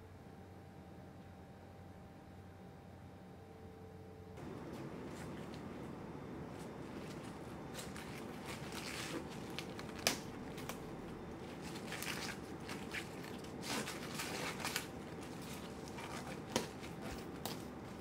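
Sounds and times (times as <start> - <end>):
cabbage leaves crackling and rustling: 4.4 - 18.0
cabbage leaf snapping: 7.7 - 18.0.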